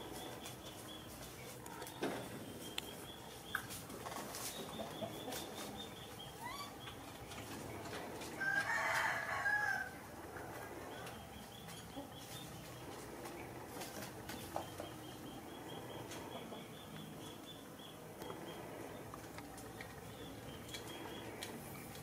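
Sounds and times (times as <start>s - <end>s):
rooster crowing: 8.4s - 10.0s.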